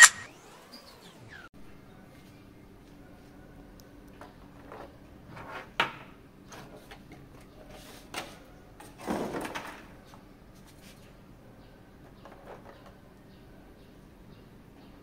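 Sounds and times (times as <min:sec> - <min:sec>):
sharp click: 0:00.0 - 0:00.3.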